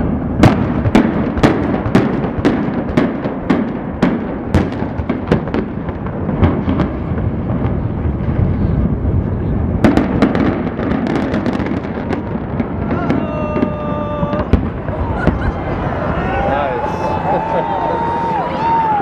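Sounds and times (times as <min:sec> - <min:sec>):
low rumble of collapsing building: 0:04.9 - 0:19.0.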